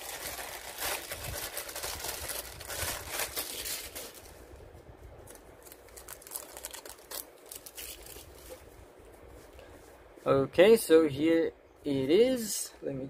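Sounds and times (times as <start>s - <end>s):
plastic wrap crinkling: 0.0s - 4.4s, 5.2s - 8.7s.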